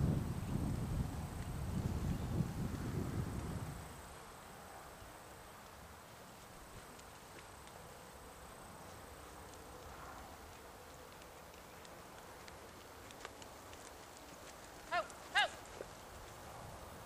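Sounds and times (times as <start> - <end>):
faint ticks: 5.5 - 16.5.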